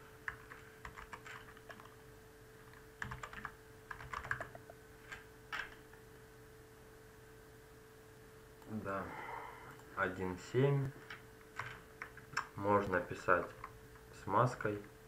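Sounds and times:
faint steady hum: 0:00.0 - 0:15.0
keyboard typing: 0:00.2 - 0:02.0, 0:02.6 - 0:05.9, 0:11.1 - 0:14.0.

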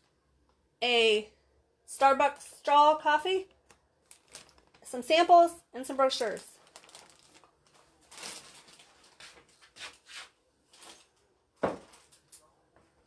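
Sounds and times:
cellophane rustling: 0:03.5 - 0:12.4.

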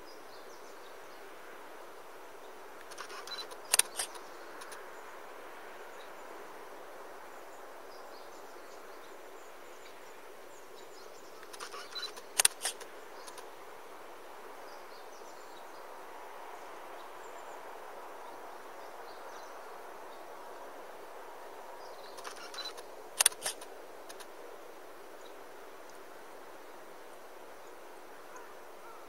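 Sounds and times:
countryside background noise: 0:00.0 - 0:29.0
camera handling clicks: 0:02.8 - 0:04.8, 0:11.5 - 0:13.4, 0:22.2 - 0:24.3
faint high chirps: 0:02.9 - 0:04.2, 0:11.4 - 0:13.4, 0:22.2 - 0:23.6.

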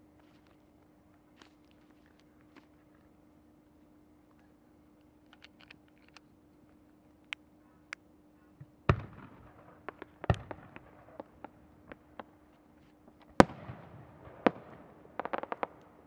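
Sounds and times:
fireworks booming: 0:08.9 - 0:12.4, 0:13.4 - 0:16.0
fireworks popping and clicking: 0:09.8 - 0:12.4, 0:15.2 - 0:16.0.

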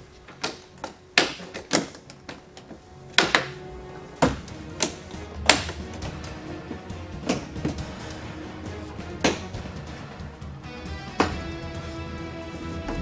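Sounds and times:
background music: 0:00.0 - 0:13.0.

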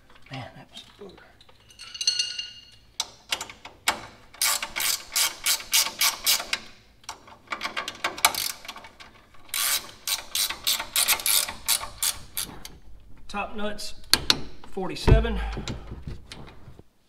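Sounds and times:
ratchet wrench clicking: 0:04.4 - 0:06.6, 0:08.3 - 0:08.8, 0:09.5 - 0:12.5.

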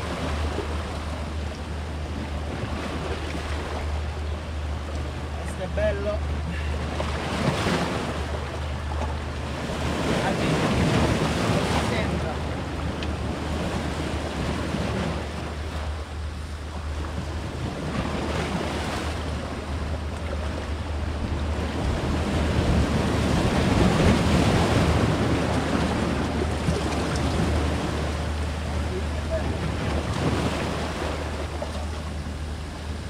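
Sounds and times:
waves breaking on rocks: 0:05.3 - 0:16.0, 0:17.0 - 0:32.3
wind buffeting microphone: 0:06.3 - 0:33.0.

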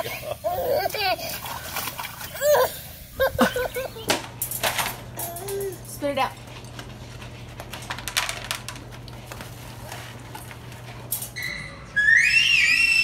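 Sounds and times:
high-pitched wavering squeal: 0:11.4 - 0:13.0.

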